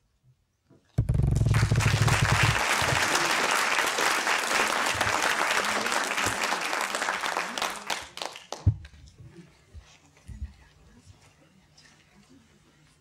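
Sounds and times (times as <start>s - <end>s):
audience applauding: 1.0s - 8.7s.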